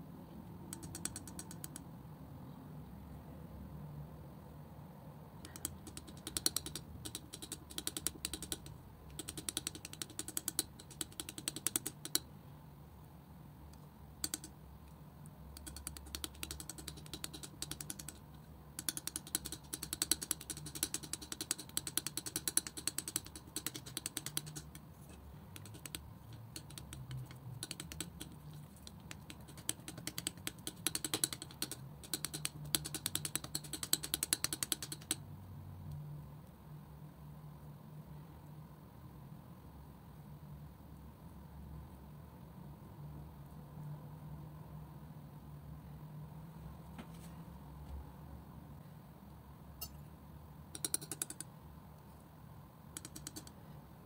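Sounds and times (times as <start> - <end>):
palette knife smearing sticky paint: 18.8 - 35.1.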